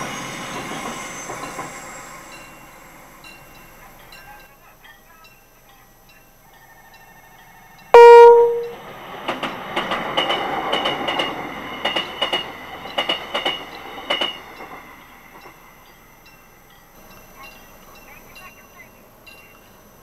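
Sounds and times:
train horn blast: 8.0s - 8.8s.

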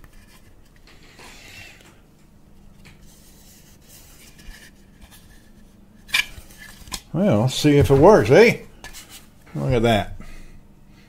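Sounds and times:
plastic object handling noise: 0.0s - 1.1s, 2.8s - 7.1s
low steady hum: 0.0s - 11.0s.

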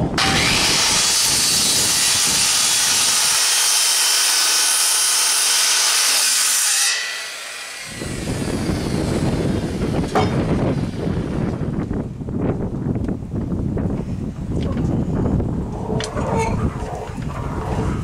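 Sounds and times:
circular saw cutting wood: 0.1s - 11.5s.

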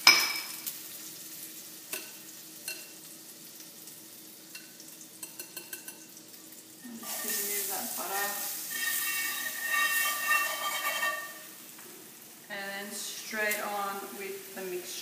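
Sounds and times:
butter sizzling in skillet: 0.0s - 15.0s.

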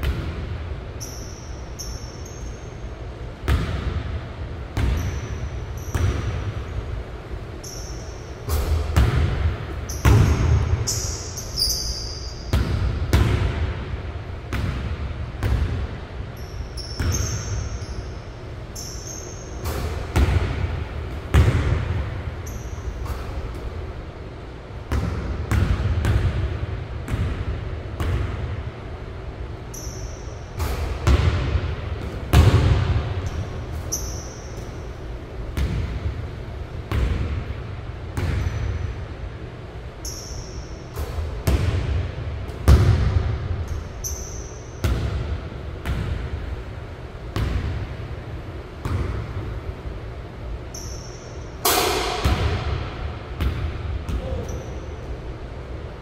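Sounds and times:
sneaker squeaks: 1.0s - 3.2s, 4.8s - 6.9s, 7.5s - 12.9s, 16.3s - 20.5s, 22.3s - 23.8s, 29.6s - 31.1s, 33.2s - 35.8s, 38.2s - 39.0s, 40.0s - 41.4s, 43.7s - 45.2s, 50.6s - 51.6s, 54.1s - 55.3s
basketball bouncing on hardwood floor: 4.8s - 5.3s, 8.5s - 10.7s, 20.1s - 20.7s, 21.3s - 22.0s, 24.9s - 26.4s, 31.0s - 33.4s, 35.6s - 36.0s, 41.4s - 43.8s, 47.4s - 47.8s.

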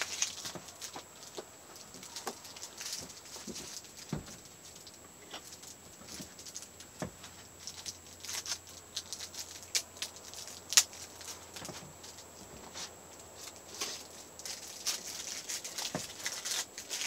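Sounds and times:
plastic packaging clicks and crinkles: 0.0s - 17.0s.

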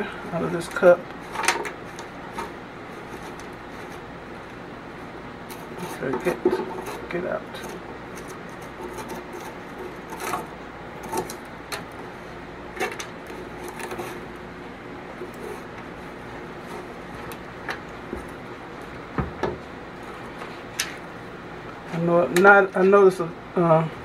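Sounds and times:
brush scraping a metal pot: 0.7s - 4.1s, 5.5s - 11.4s.

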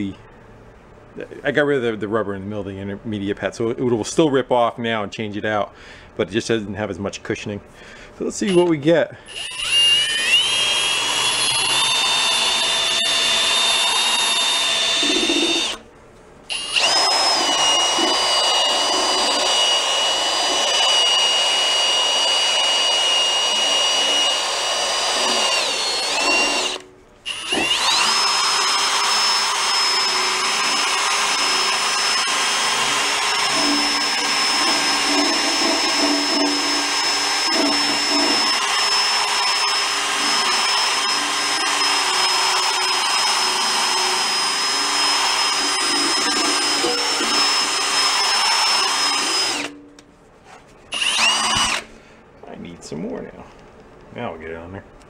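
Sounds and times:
cordless drill whining: 9.3s - 15.8s, 16.5s - 49.8s, 50.9s - 51.9s.

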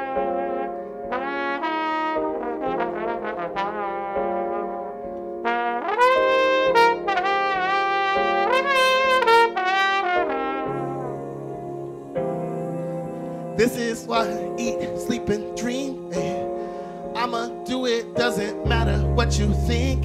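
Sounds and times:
trombone solo with slides: 0.0s - 12.0s
backing track of held chords: 0.0s - 20.0s.

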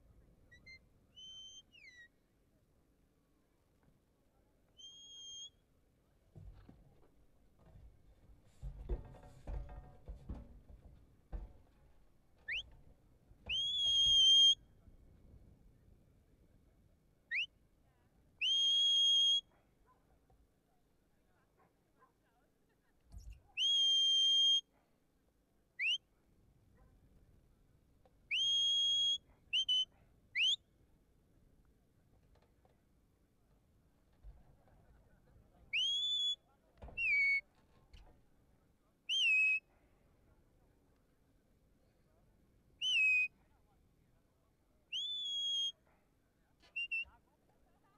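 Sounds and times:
shepherd's whistle commands: 0.5s - 2.1s, 4.8s - 5.6s, 12.5s - 12.8s, 13.5s - 14.6s, 18.4s - 19.5s, 23.6s - 24.7s, 25.8s - 26.0s, 28.3s - 30.6s, 35.7s - 36.4s, 37.0s - 37.4s, 39.1s - 39.6s, 42.8s - 43.3s, 44.9s - 45.8s, 46.7s - 47.1s.

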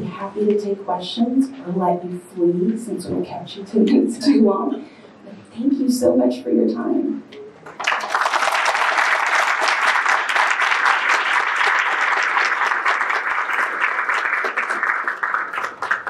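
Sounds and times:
audience applauding: 7.7s - 16.0s.

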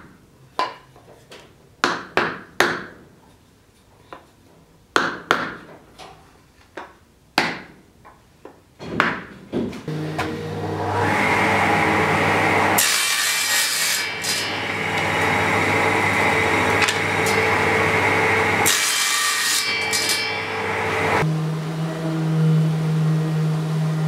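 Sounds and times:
saw blade cutting wood: 9.9s - 21.3s
table saw running: 9.9s - 24.0s.

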